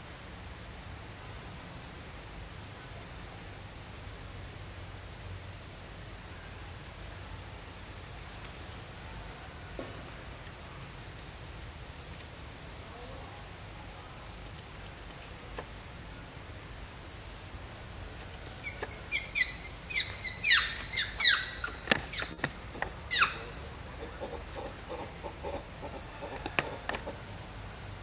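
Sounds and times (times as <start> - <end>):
monkey squealing: 18.6 - 26.0.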